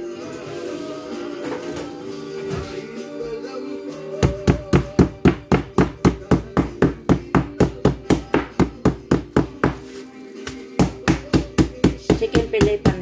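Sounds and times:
meat mallet pounding: 4.2s - 9.8s, 10.8s - 13.0s.

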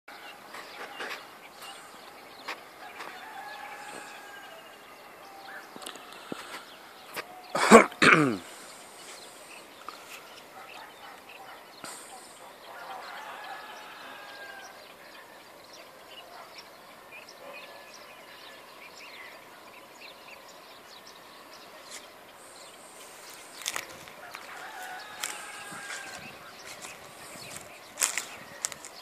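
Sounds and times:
birds dawn chorus: 0.1s - 29.0s
faint background hiss: 0.2s - 29.0s.

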